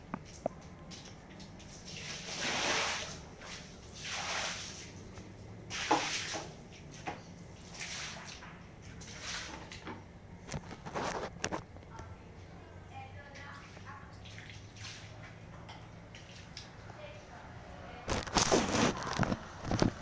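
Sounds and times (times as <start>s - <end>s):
water splashing on tiled floor: 0.2s - 11.4s, 13.3s - 16.8s, 18.0s - 20.0s.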